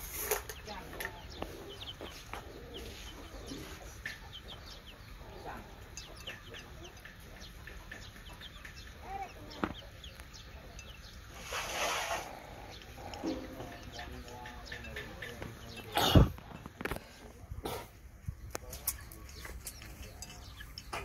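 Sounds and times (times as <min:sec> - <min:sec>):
chickens clucking and peeping: 0:00.0 - 0:21.0
puppies lapping at metal bowl: 0:12.7 - 0:16.8, 0:18.8 - 0:21.0.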